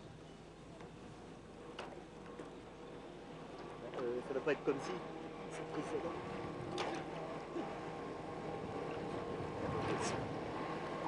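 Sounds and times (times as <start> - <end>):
motorboat engine humming: 0.0 - 11.0.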